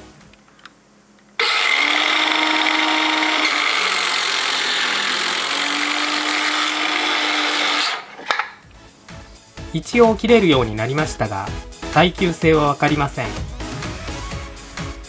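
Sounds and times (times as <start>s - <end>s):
circular saw cutting board: 1.4s - 8.6s.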